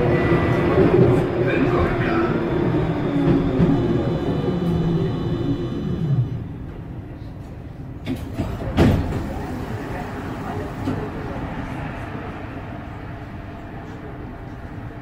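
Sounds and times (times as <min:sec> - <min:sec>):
tram motor whine: 0:00.0 - 0:06.8.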